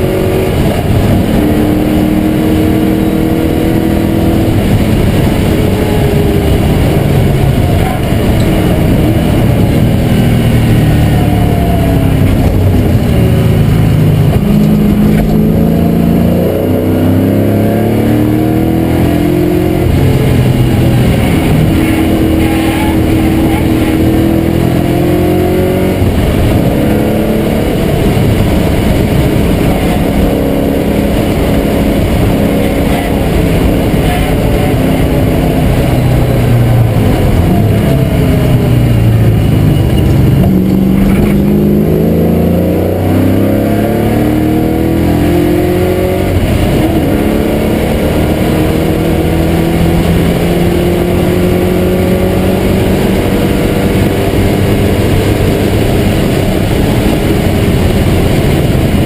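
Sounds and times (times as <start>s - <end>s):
race car engine revving: 0.0s - 59.0s.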